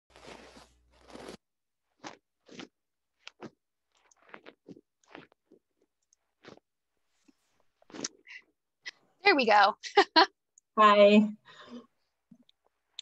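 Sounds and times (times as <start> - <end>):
short crunchy noises: 0.1 - 8.4.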